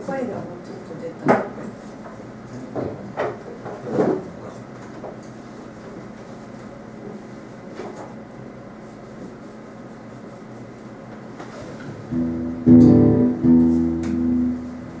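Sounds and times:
acoustic guitar strumming chords: 12.1s - 15.0s.

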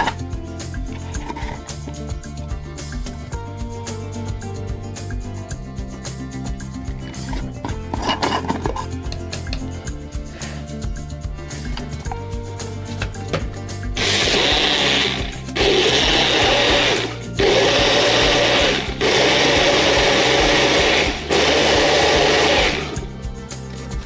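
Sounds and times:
background music: 0.0s - 24.0s
blender motor pulsing: 14.0s - 23.1s.

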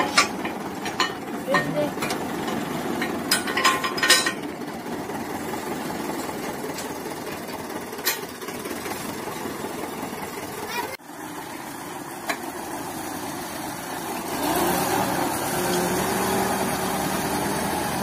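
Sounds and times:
metal hitch parts clinking: 0.0s - 4.5s
tractor diesel engine idling: 0.0s - 18.0s.

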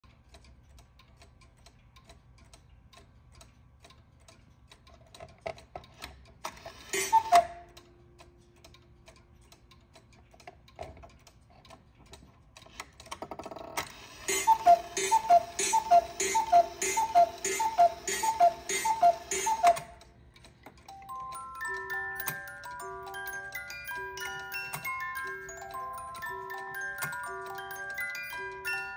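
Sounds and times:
clock mechanism clatter: 0.0s - 28.9s
cuckoo clock ticking: 0.0s - 28.9s
two-note cuckoo call: 7.0s - 7.7s, 14.3s - 20.0s.

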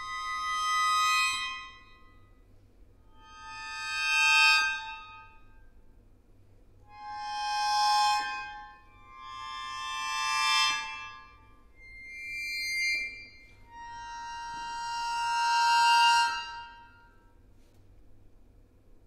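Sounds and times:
accordion chords: 0.0s - 1.8s, 6.9s - 17.1s.

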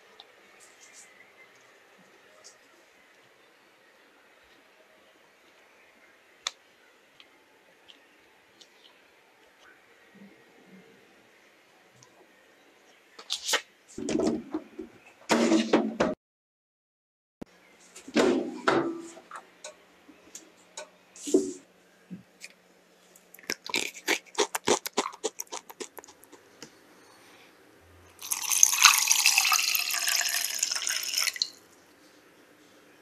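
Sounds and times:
crackers crunching: 23.2s - 26.4s
water pouring into saucepan: 28.2s - 31.6s.

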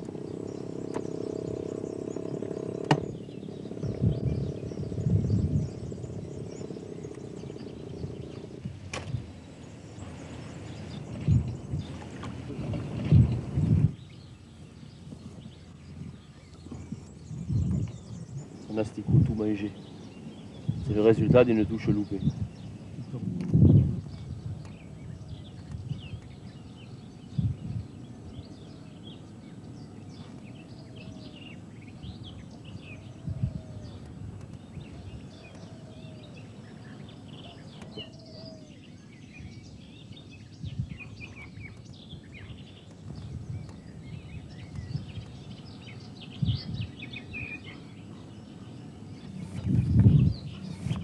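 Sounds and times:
small birds chirping: 0.0s - 51.0s
steady outdoor noise: 0.0s - 51.0s.

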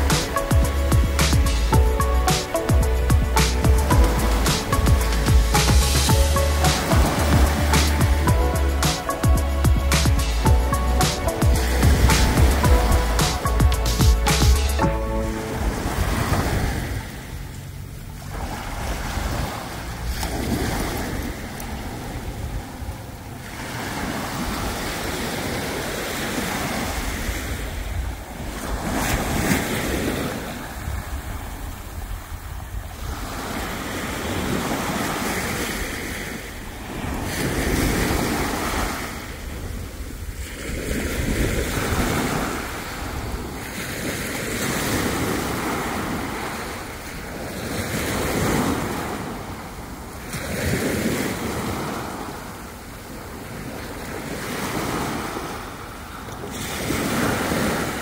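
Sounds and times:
small waves breaking on beach: 0.0s - 9.4s, 15.0s - 58.0s
wind buffeting microphone: 15.2s - 52.4s.

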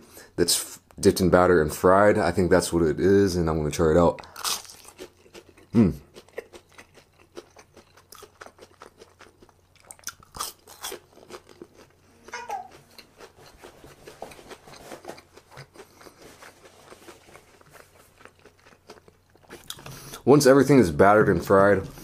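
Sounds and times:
person chewing crunchy food: 4.2s - 20.3s.

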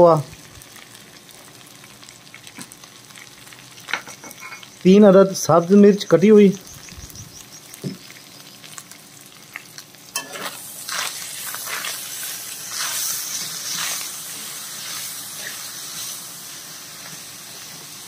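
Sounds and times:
food sizzling in pot: 0.0s - 18.0s
metal spatula scraping pot: 10.2s - 12.0s.

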